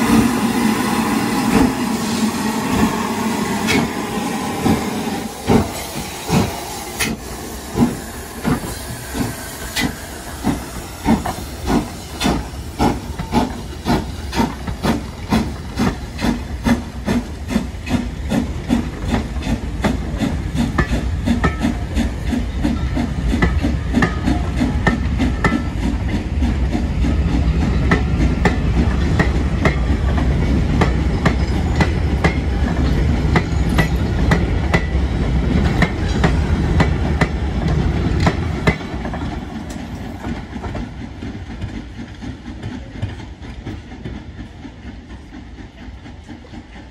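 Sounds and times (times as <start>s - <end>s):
heavy train rumble: 0.0s - 46.9s
train wheels clicking over rail joints: 1.1s - 46.9s.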